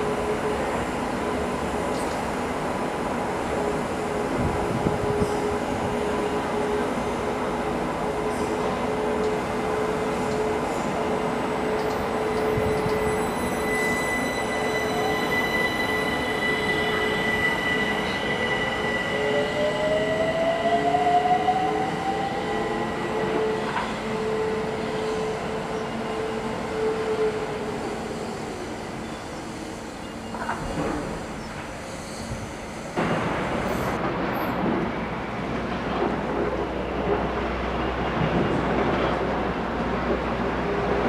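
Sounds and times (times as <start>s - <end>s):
electric train hum: 0.0s - 31.8s.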